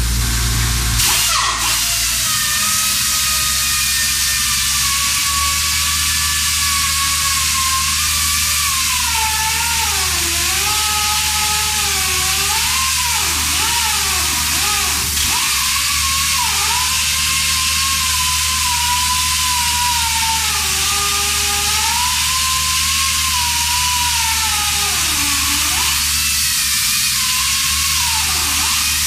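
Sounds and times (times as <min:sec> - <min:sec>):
pneumatic chain saw cutting concrete: 0:00.0 - 0:29.0.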